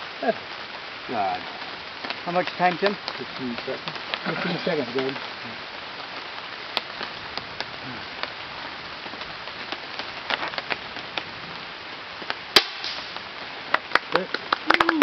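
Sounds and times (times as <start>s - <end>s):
steady hiss: 0.0s - 15.0s
air rifle shot: 12.6s - 13.1s.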